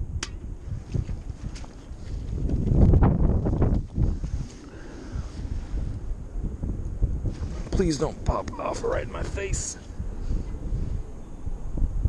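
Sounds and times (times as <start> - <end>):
wind rumble on microphone: 0.0 - 12.0
microphone handling noise: 0.6 - 8.6.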